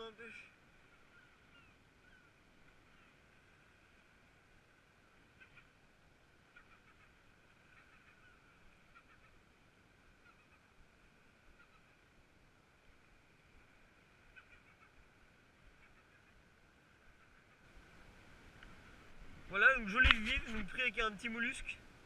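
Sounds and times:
faint ticks: 18.5 - 19.0.

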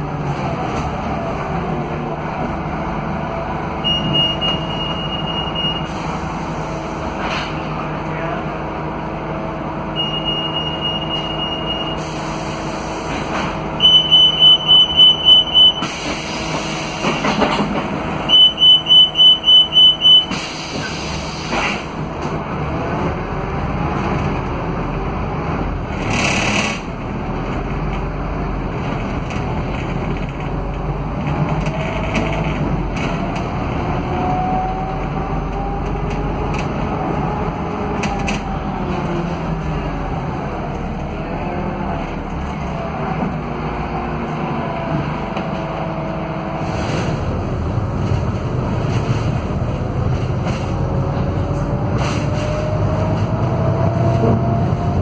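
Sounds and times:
diesel bus engine under load: 0.0 - 55.0
high warning beep: 3.9 - 5.9, 10.0 - 12.0, 13.8 - 15.9, 18.3 - 20.4
quick pulsed beeps: 13.8 - 15.9, 18.3 - 20.3
pneumatic door hisses: 15.8 - 17.3, 20.3 - 21.9.

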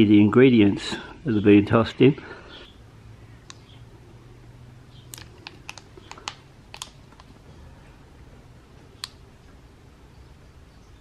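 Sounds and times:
plastic squeeze bottle crackling: 5.1 - 7.4
sharp light clicks: 9.0 - 9.2.

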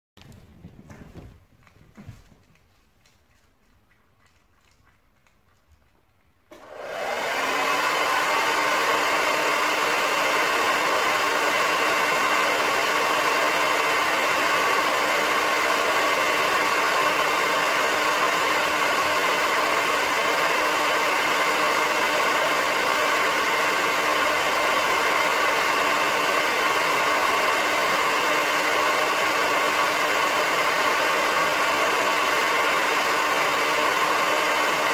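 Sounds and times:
hair dryer blowing: 6.5 - 34.9.

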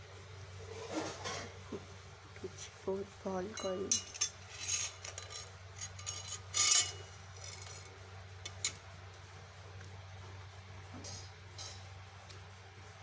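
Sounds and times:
steady low hum: 0.0 - 13.0
metal kitchenware clinking: 3.5 - 7.9.

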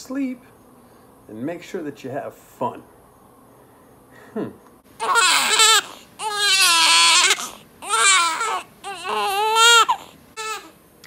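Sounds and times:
newborn baby crying: 5.0 - 10.8.

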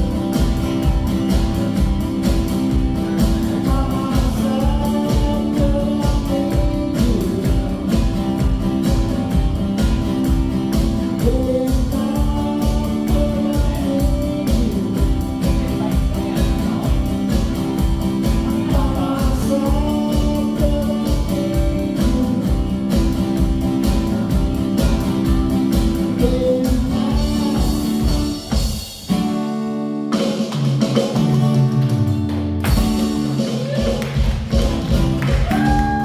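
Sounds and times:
kick drum beat: 0.0 - 28.9, 32.6 - 36.0
acoustic guitar strummed: 0.0 - 36.0
man singing: 2.9 - 8.9, 10.9 - 28.4.

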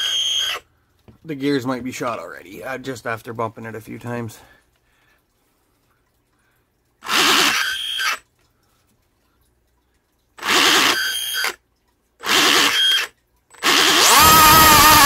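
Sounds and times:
blower high-pitched whine: 13.7 - 15.0.

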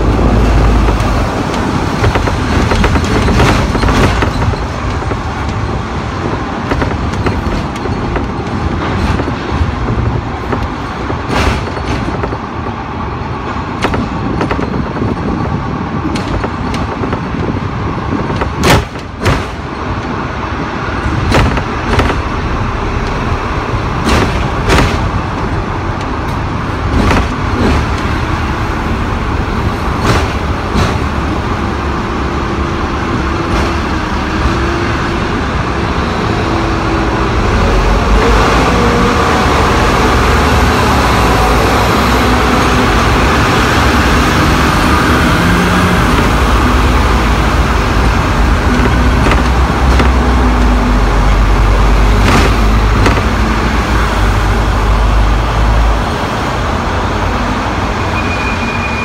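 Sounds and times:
sharp clicks and knocks: 0.0 - 20.3, 21.0 - 28.9, 29.6 - 31.9, 44.9 - 55.4
tram rumble: 0.0 - 59.0.

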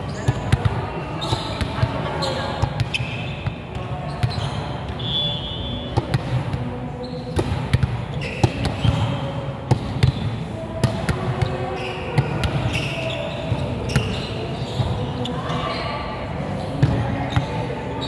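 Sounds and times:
shoes squeaking on court floor: 0.0 - 6.2, 7.0 - 7.4, 8.0 - 9.4, 11.4 - 18.0
low hum of hall: 0.0 - 18.0
volleyball hits and bounces: 5.9 - 6.7, 7.3 - 11.5.

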